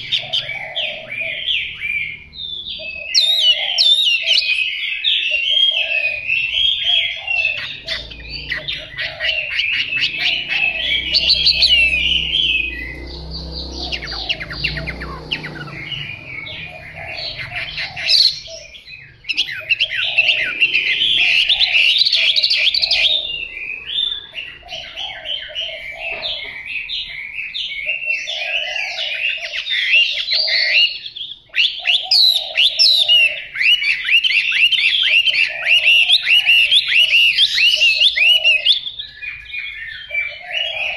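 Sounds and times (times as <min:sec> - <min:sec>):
bird whistling song: 0:00.0 - 0:40.9.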